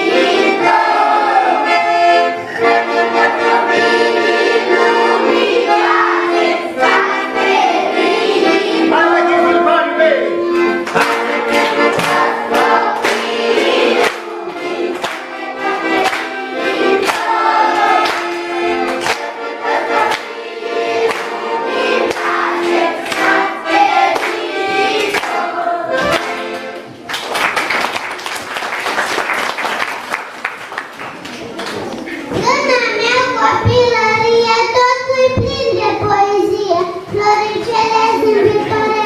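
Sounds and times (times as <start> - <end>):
children singing: 0.0 - 9.6, 10.5 - 26.8, 32.2 - 39.0
piano accordion: 0.0 - 27.1, 32.6 - 39.0
applause: 27.0 - 31.9.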